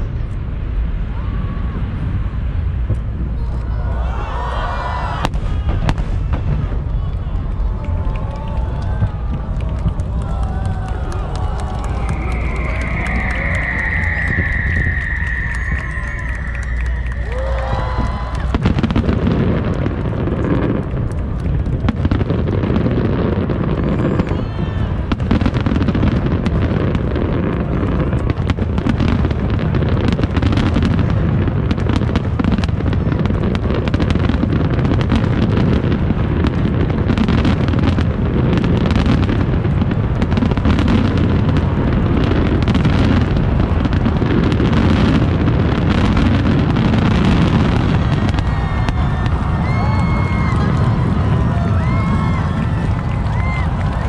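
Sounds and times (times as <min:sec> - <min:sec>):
low rumble: 0:00.0 - 0:22.7
fireworks shells bursting: 0:11.6 - 0:19.9.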